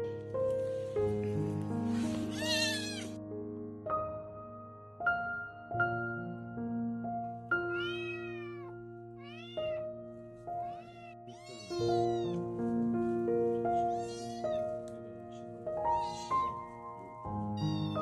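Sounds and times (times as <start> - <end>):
background music of held notes: 0.0 - 6.2, 7.0 - 18.0
kitten meowing: 2.3 - 3.2, 7.6 - 9.9, 10.5 - 12.4, 13.8 - 14.8, 15.9 - 16.6, 17.4 - 18.0.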